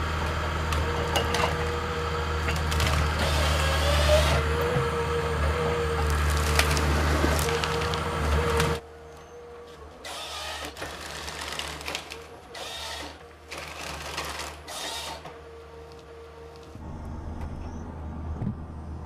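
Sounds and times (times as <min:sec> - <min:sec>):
engine humming: 0:00.0 - 0:10.0, 0:10.8 - 0:19.0
wood cracking and snapping: 0:06.0 - 0:08.8, 0:10.6 - 0:12.3, 0:13.5 - 0:14.6.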